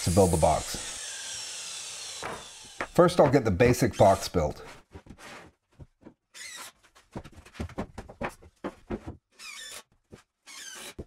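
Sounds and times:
cordless drill whirring: 0.0s - 3.0s.

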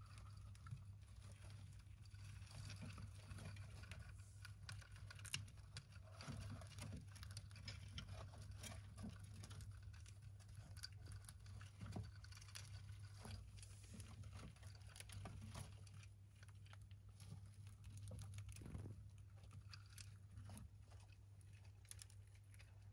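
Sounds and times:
hamsters nibbling food: 0.0s - 22.9s
hamsters scrabbling in bedding: 0.0s - 22.9s.

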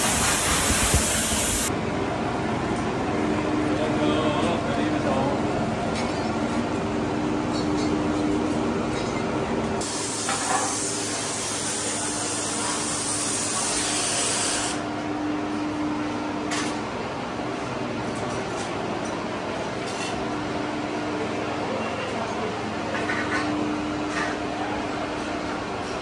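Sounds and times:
compressed air hissing: 0.0s - 1.7s, 9.8s - 14.8s
factory machinery hum: 0.0s - 26.0s.

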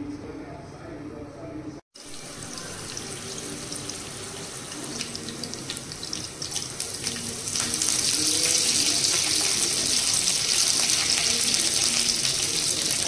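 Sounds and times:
chillies sizzling in hot oil: 2.0s - 13.0s.

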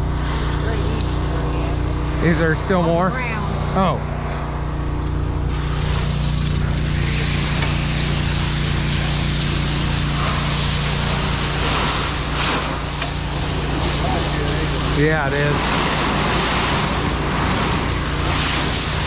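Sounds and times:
pump engine drone: 0.0s - 19.0s
water spray hissing: 5.4s - 19.0s.

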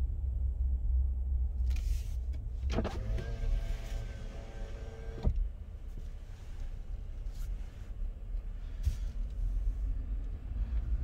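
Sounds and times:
low cabin rumble: 0.0s - 11.0s
power window motor whining: 2.7s - 5.4s.

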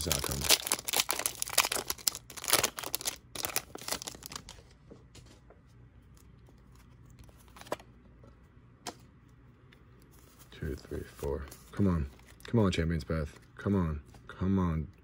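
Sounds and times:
foil pack crinkling: 0.0s - 4.7s.

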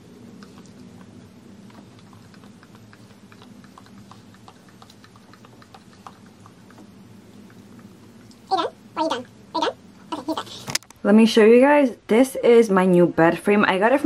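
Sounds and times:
low hum: 0.0s - 11.2s
puppy licking hand: 0.4s - 8.5s.

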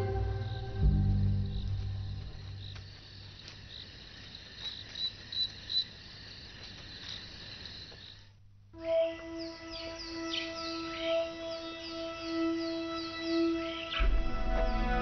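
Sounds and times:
background music: 0.0s - 2.8s, 8.8s - 15.0s
crickets chirping: 0.0s - 15.0s.

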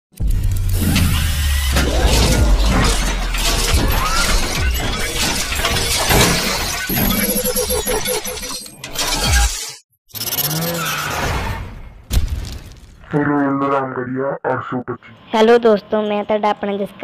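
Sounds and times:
crackling and shattering hits: 0.2s - 7.3s, 12.0s - 13.1s
deep steady rumble: 0.4s - 5.0s
high squealing tone: 0.8s - 9.5s.

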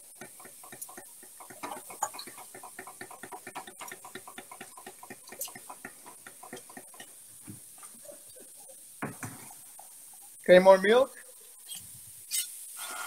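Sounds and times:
whisk clicking against saucepan: 0.0s - 7.2s.

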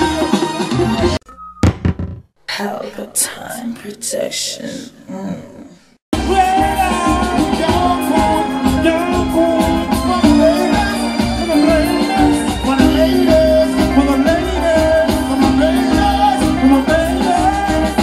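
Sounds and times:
live reggae band: 0.0s - 1.7s, 6.1s - 18.0s
lead vocal singing: 6.2s - 18.0s.

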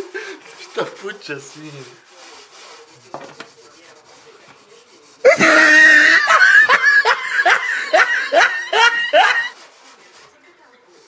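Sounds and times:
man laughing loudly: 5.3s - 9.5s.

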